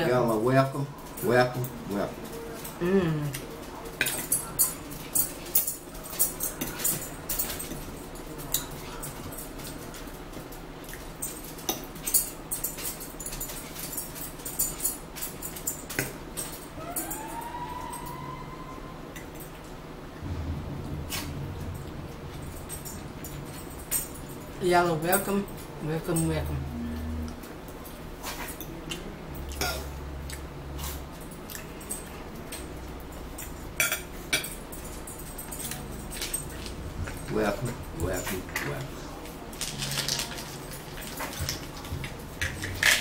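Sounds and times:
cutlery clicking on a plate: 0:03.3 - 0:10.2
high whine rising in pitch: 0:16.8 - 0:19.2, 0:20.2 - 0:24.7, 0:26.5 - 0:27.5
chewing and lip-smacking: 0:30.2 - 0:31.8.

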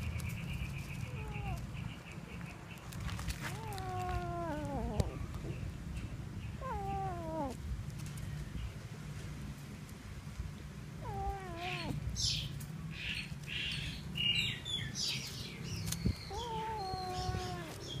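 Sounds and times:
kitten meowing: 0:03.4 - 0:05.2, 0:06.6 - 0:07.6, 0:11.0 - 0:12.0, 0:16.3 - 0:17.9.

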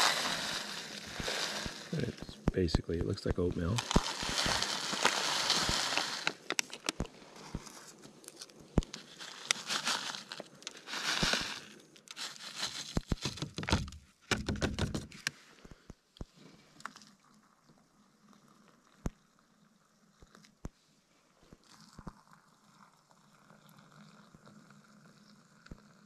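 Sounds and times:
food pouch crinkling: 0:00.0 - 0:02.3, 0:03.6 - 0:07.1, 0:08.2 - 0:13.8.

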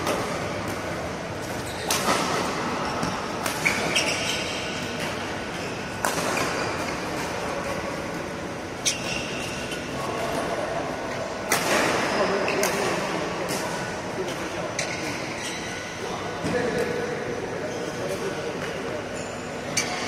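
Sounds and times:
shoe squeak: 0:01.6 - 0:02.1, 0:02.8 - 0:07.1, 0:08.8 - 0:09.8, 0:14.7 - 0:16.0, 0:19.2 - 0:20.0
rackets hitting shuttlecock: 0:04.9 - 0:07.3.

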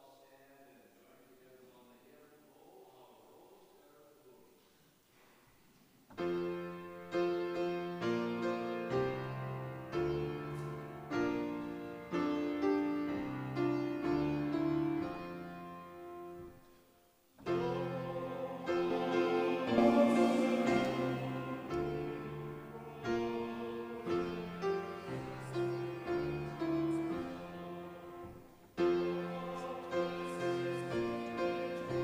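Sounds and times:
piano playing slow chords: 0:06.2 - 0:16.6, 0:17.4 - 0:32.0.

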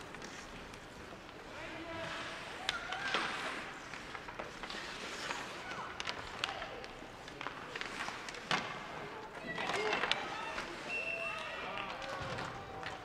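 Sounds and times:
skates scraping on ice: 0:00.0 - 0:11.0
sharp clacks of sticks and puck: 0:02.6 - 0:10.7.

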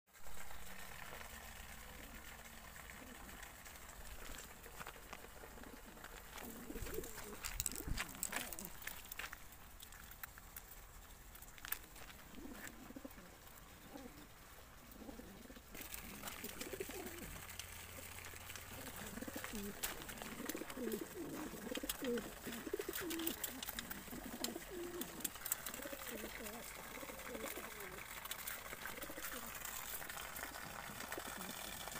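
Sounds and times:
pigeons cooing: 0:00.3 - 0:09.0, 0:12.2 - 0:31.9.

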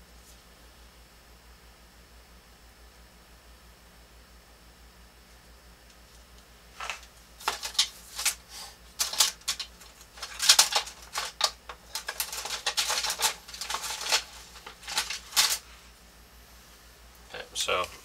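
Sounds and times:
paper rustling: 0:06.8 - 0:15.8.

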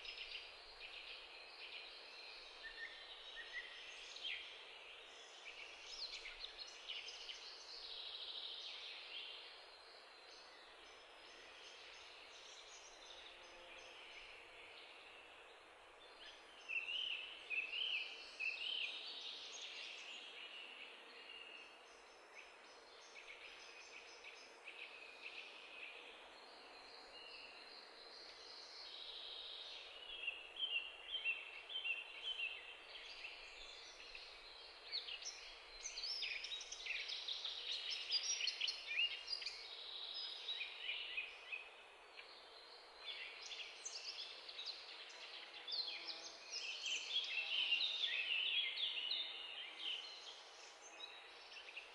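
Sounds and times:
birds chirping and singing: 0:27.0 - 0:42.4.

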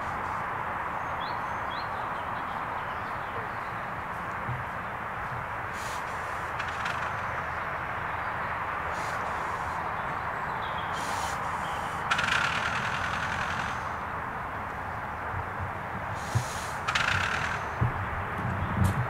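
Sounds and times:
steam locomotive hiss and running: 0:05.7 - 0:06.4, 0:11.0 - 0:11.9, 0:16.2 - 0:16.9.

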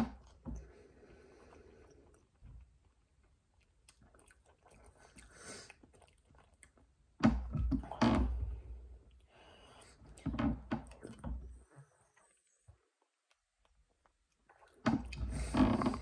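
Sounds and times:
person chewing: 0:01.2 - 0:07.2.

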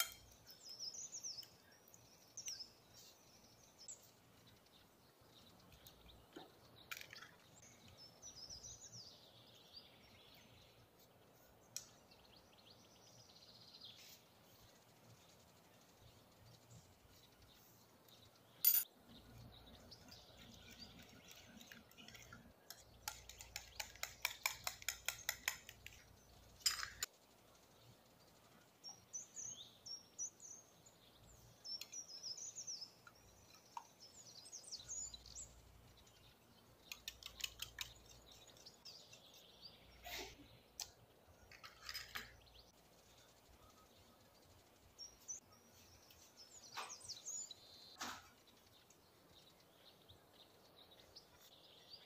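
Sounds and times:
fork beating eggs in a dish: 0:20.1 - 0:27.1, 0:36.8 - 0:39.3.

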